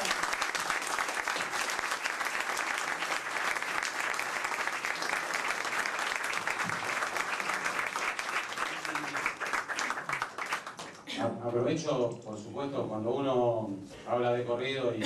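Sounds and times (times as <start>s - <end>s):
audience applauding: 0.0s - 11.1s.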